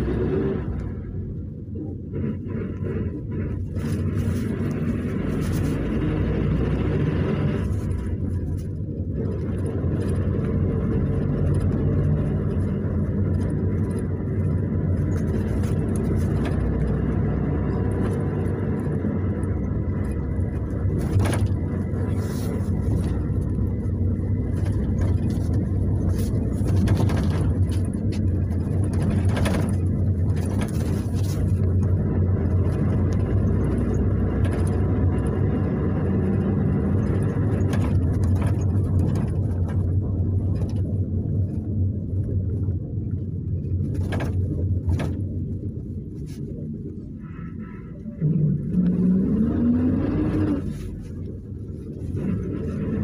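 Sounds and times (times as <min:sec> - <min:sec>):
engine and road rumble: 0:00.0 - 0:53.0
clicks and knocks from body: 0:19.9 - 0:32.0, 0:43.7 - 0:46.6.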